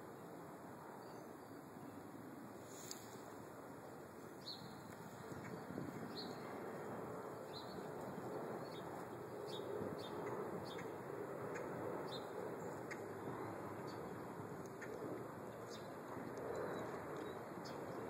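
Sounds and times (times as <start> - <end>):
steady background hiss: 0.0 - 16.1
small bird chirping: 8.6 - 13.0.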